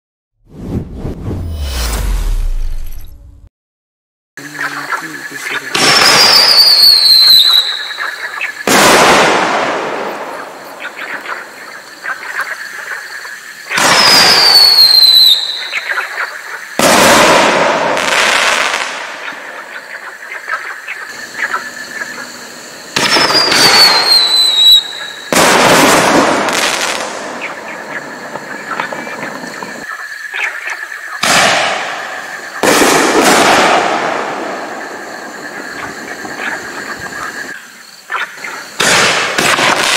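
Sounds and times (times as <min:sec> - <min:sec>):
mortar launch with falling whistle: 0:00.5 - 0:03.4, 0:05.8 - 0:07.8, 0:13.8 - 0:15.8, 0:23.0 - 0:26.4
firework shell bang with crackle: 0:08.6 - 0:10.2, 0:16.8 - 0:19.0, 0:23.0 - 0:27.3, 0:31.2 - 0:32.0, 0:32.6 - 0:34.8, 0:38.8 - 0:39.9.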